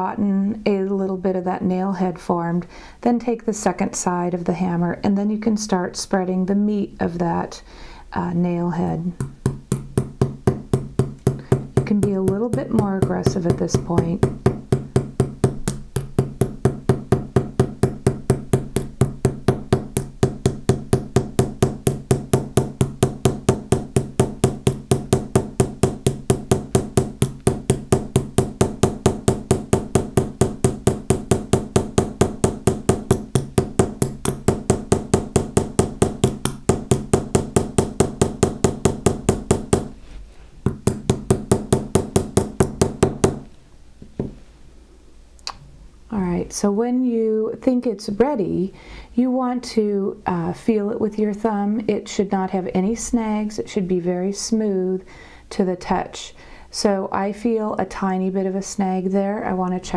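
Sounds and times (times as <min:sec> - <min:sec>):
small hammer tapping metal: 0:09.2 - 0:39.9.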